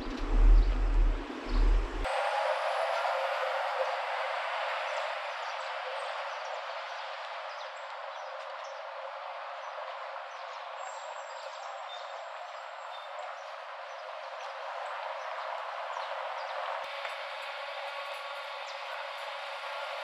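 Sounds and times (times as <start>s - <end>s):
small birds chirping: 0.0s - 2.1s
outdoor background noise: 0.0s - 20.0s.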